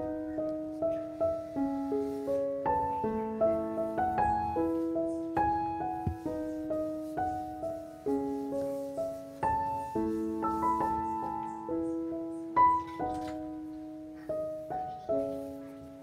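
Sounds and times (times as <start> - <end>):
gentle piano music: 0.0 - 16.0.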